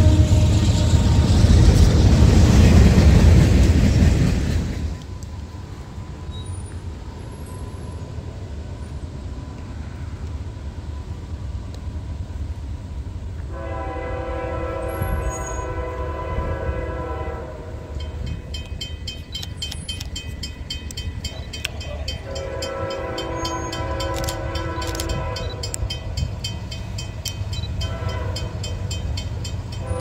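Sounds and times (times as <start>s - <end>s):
locomotive horn chord: 0.0s - 1.3s, 13.5s - 18.0s, 22.2s - 25.9s, 27.8s - 28.8s
train cars rumbling on rails: 0.0s - 30.0s.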